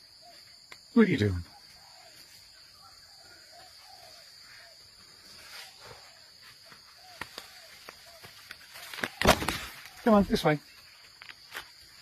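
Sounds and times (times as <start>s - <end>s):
twigs snapping underfoot: 7.0s - 10.1s.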